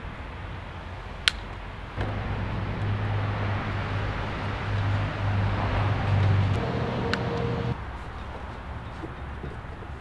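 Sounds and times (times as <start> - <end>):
vehicle engine humming: 2.0 - 8.0.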